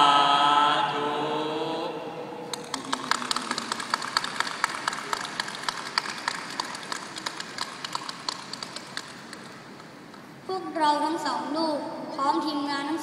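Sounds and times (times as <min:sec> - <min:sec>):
audience applauding: 0:02.5 - 0:09.6.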